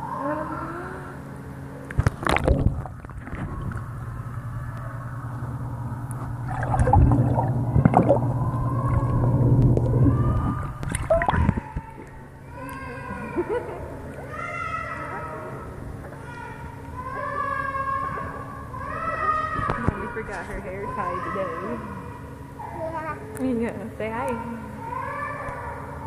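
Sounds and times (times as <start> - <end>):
underwater low hum: 0.0 - 26.0
underwater bubbling and gurgling: 2.0 - 5.2, 6.1 - 12.2
water splash: 6.4 - 11.7.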